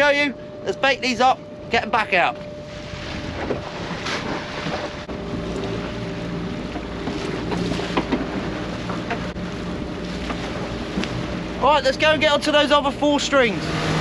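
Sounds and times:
boat engine running: 0.0 - 14.0
wind buffeting microphone: 0.0 - 14.0
knocks and clatters: 6.7 - 9.3.

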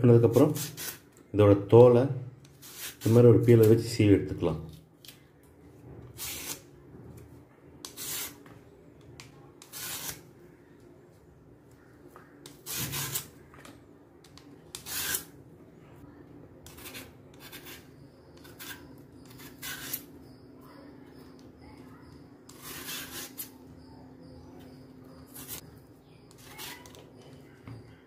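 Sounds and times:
peeler scraping plantain skin: 0.2 - 1.0, 2.4 - 3.8, 6.2 - 6.7, 7.8 - 8.4, 9.6 - 10.3, 12.4 - 13.3, 14.7 - 15.3, 16.6 - 20.1, 22.4 - 23.5, 25.2 - 25.6, 26.3 - 27.0.

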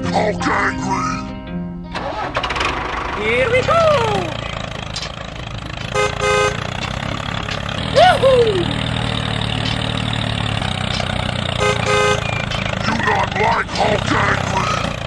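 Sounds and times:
toy tractor engine running: 2.0 - 15.0
person exclaiming: 3.2 - 4.4, 7.8 - 8.8
short horn toot: 5.9 - 6.8, 11.6 - 12.6.

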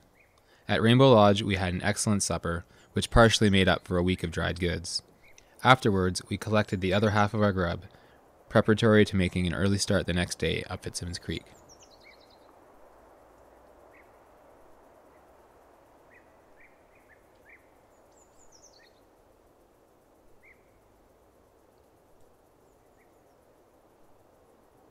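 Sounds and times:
soft rushing hiss: 0.0 - 24.9
bird chirps: 4.9 - 5.6, 11.2 - 12.6, 16.1 - 19.1, 20.4 - 20.9, 22.6 - 23.4.

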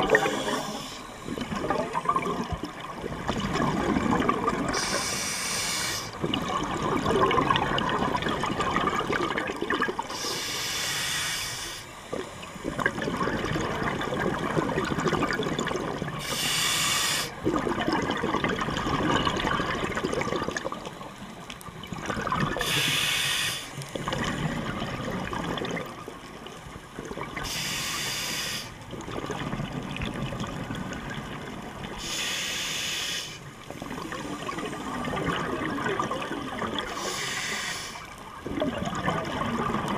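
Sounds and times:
exhaled air bubbling: 0.0 - 39.9
regulator breathing hiss: 0.2 - 1.5, 4.7 - 6.2, 10.1 - 12.5, 16.2 - 17.4, 22.6 - 23.9, 27.4 - 28.8, 32.0 - 34.9, 36.9 - 38.3.

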